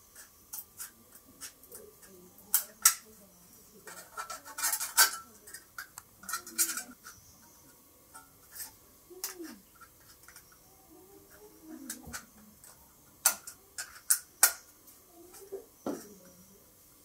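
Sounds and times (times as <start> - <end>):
tin snips cutting metal: 0.5 - 3.1.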